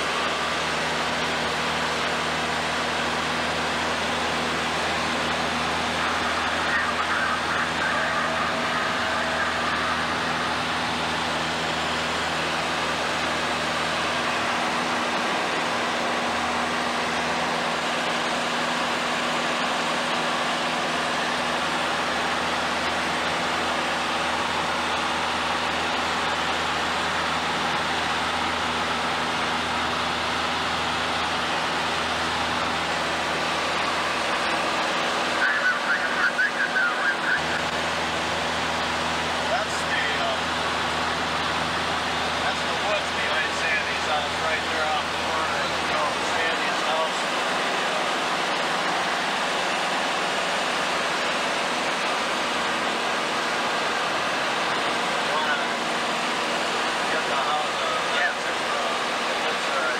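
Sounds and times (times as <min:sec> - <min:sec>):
airplane engine and propeller drone: 0:00.0 - 0:59.9.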